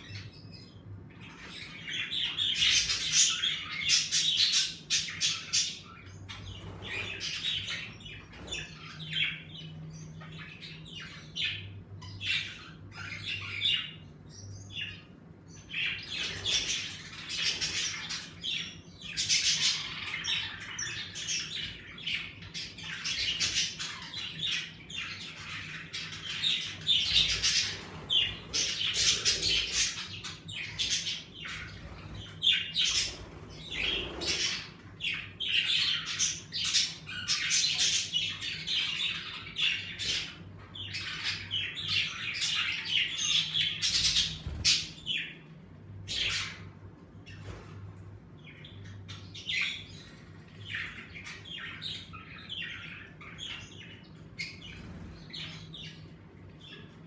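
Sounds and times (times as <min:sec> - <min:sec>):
budgerigars chattering: 0:15.6 - 0:45.3.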